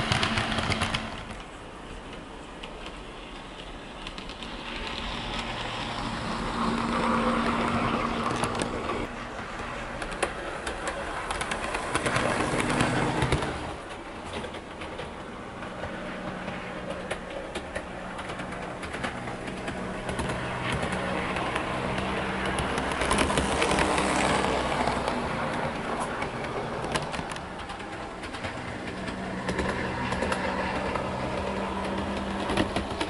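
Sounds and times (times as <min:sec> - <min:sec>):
wheels clicking over rail joints: 0:00.0 - 0:33.0.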